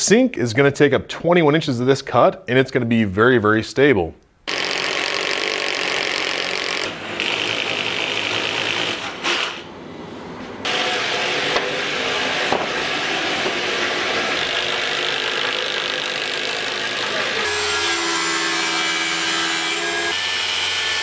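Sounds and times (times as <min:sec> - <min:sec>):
cordless drill boring into wood: 0:04.5 - 0:09.6, 0:13.0 - 0:17.9.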